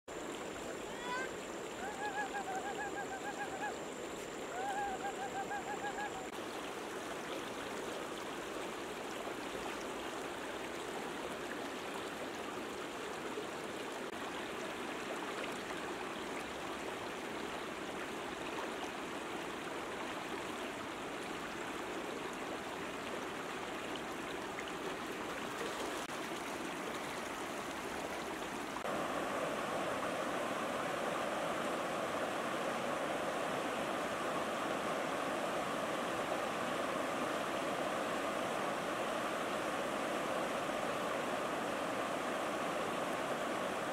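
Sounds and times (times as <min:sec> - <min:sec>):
short wavering calls: 0:00.8 - 0:06.4
river water rushing over rocks: 0:25.1 - 0:43.9.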